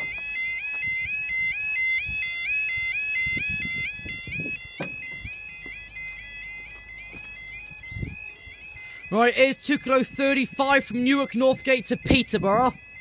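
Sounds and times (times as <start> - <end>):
level crossing alarm two-tone yodel: 0.0 - 13.0
dull knocks: 4.4 - 5.8.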